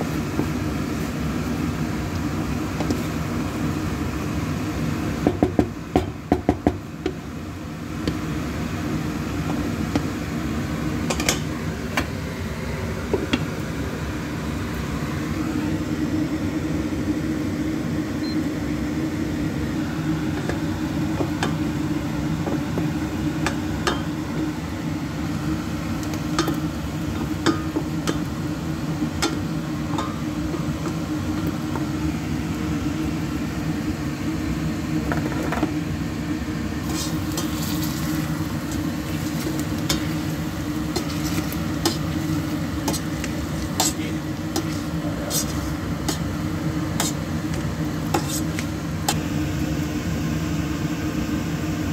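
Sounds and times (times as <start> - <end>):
steady low hum: 6.1 - 51.9
spatula scraping frying pan: 36.8 - 47.3, 47.9 - 48.7.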